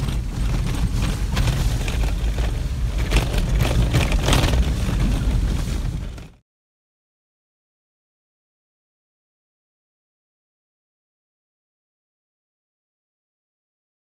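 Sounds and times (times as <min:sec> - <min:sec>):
engine and tyres rumbling: 0:00.0 - 0:06.4
light knocks and rattles: 0:00.0 - 0:06.4.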